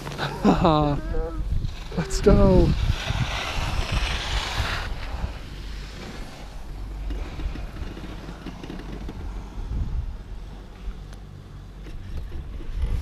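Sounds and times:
wind blowing across microphone: 0:00.0 - 0:11.1, 0:11.9 - 0:13.0.

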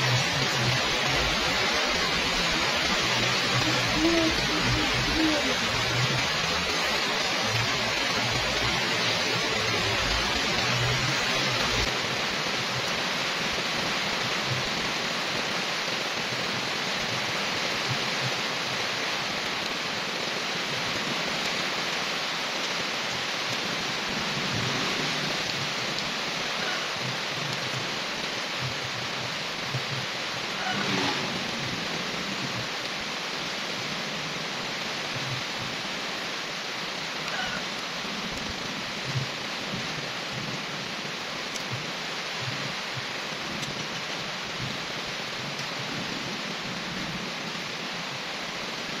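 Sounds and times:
rain falling on leaves and pavement: 0:00.0 - 0:49.0.

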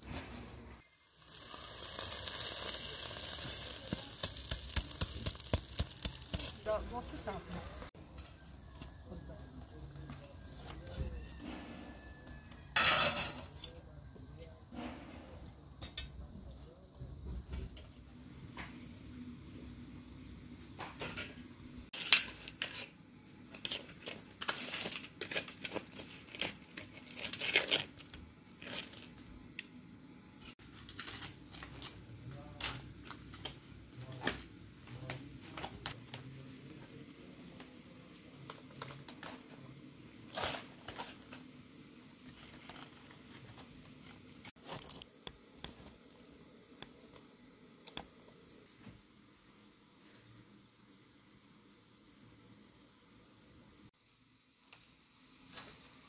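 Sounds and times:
aluminium foil crinkling and tearing: 0:01.2 - 0:12.6, 0:22.0 - 0:29.4, 0:30.5 - 0:34.4, 0:35.8 - 0:48.6.

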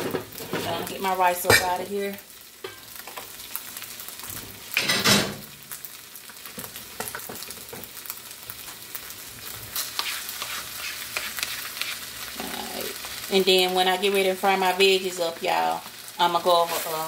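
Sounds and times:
fried rice sizzling in a pan: 0:00.0 - 0:17.0
spatula scraping a pan: 0:09.4 - 0:12.6.

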